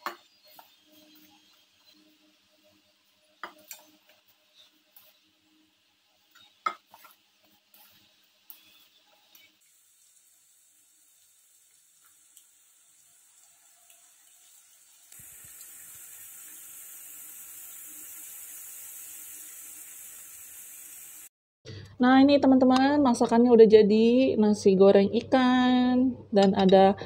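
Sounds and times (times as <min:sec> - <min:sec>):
fritters sizzling in hot oil: 0:00.0 - 0:21.3.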